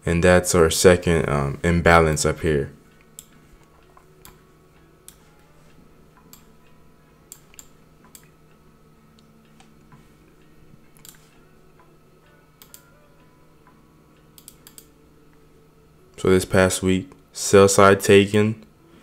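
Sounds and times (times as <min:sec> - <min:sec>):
low steady hum: 0:00.0 - 0:19.0
computer mouse clicks: 0:03.0 - 0:04.4, 0:06.2 - 0:06.5, 0:07.3 - 0:08.3, 0:11.0 - 0:11.3, 0:12.6 - 0:12.8, 0:14.4 - 0:14.9.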